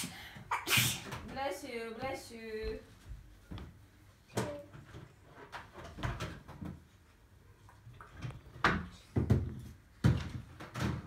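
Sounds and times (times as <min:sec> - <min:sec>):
knocks and bumps on wood: 0:08.4 - 0:11.0.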